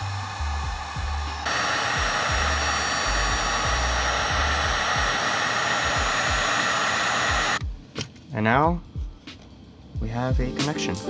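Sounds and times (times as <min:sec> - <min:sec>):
heat gun blowing: 0:00.0 - 0:07.6.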